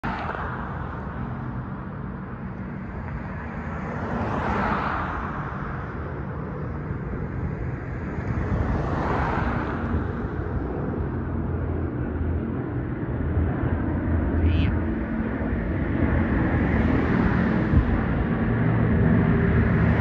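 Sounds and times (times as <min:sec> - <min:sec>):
turboprop engines droning: 0:00.0 - 0:20.0.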